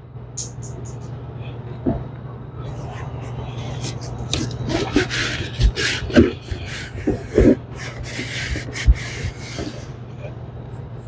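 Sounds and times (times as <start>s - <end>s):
steady low hum: 0.0s - 11.0s
hoses and fittings scraping: 3.6s - 10.3s.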